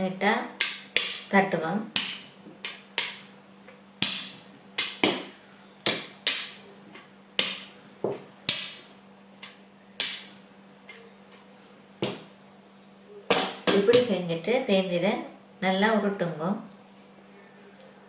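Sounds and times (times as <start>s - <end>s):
steady low hum: 0.0s - 18.0s
rolling pin knocking on board: 2.0s - 3.2s, 4.0s - 5.3s, 5.9s - 6.6s, 12.0s - 12.3s.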